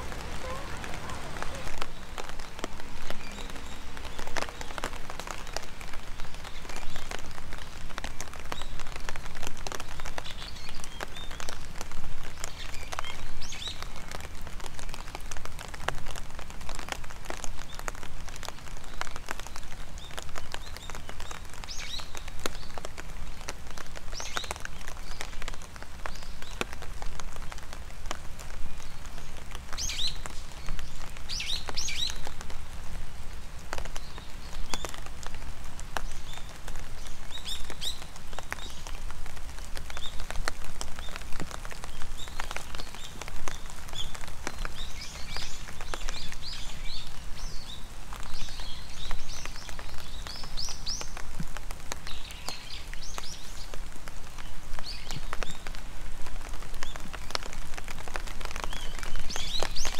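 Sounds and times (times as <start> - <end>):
birds chirping: 0.0 - 7.0
raindrops ticking: 0.0 - 59.9
steady rain: 0.0 - 59.9.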